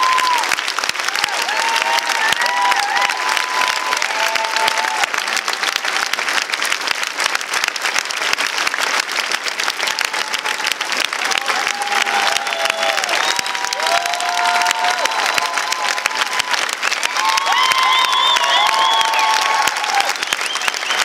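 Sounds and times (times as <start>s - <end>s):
large audience applauding: 0.0s - 21.0s
sliding whistles from crowd: 12.9s - 13.6s, 17.4s - 21.0s.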